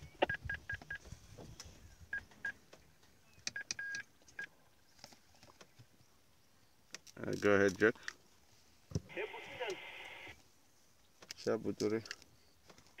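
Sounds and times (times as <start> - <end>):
short electronic beeps: 0.0 - 1.0.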